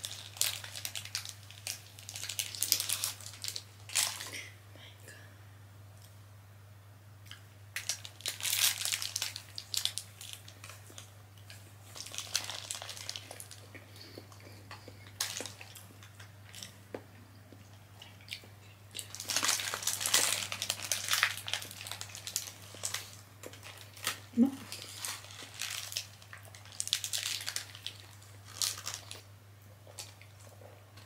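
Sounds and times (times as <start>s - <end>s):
paper wrapper crinkling: 0.0s - 4.4s, 7.8s - 14.4s, 15.0s - 16.8s, 19.0s - 29.3s
steady low hum: 0.0s - 31.0s.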